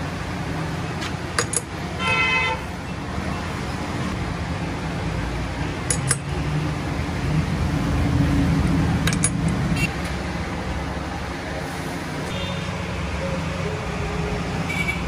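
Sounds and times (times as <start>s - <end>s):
vehicle horn toot: 2.0s - 2.6s, 14.7s - 15.0s.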